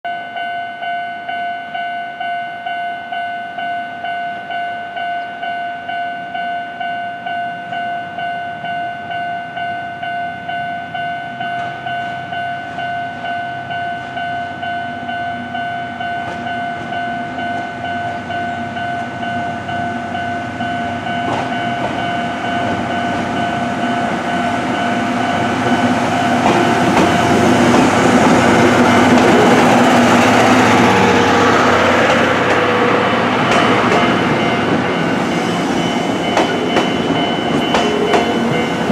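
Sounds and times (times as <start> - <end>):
level crossing warning bell: 0.1 - 38.9
train rumbling past: 15.0 - 38.9.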